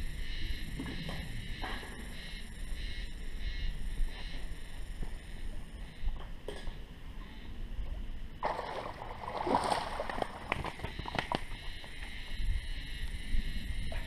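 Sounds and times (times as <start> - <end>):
fish thrashing in water: 8.4 - 11.9.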